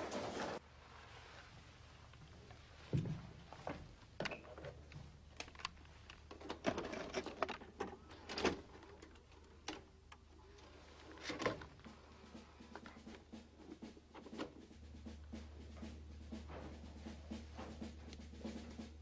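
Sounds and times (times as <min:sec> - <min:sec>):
steady low hum: 0:14.6 - 0:19.0.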